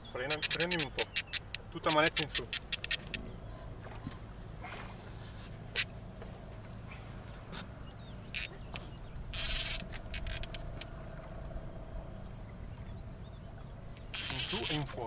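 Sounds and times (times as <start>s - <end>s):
boat motor humming: 0.0s - 15.0s
short sharp clicks: 0.2s - 3.2s
thin whine: 8.3s - 15.0s.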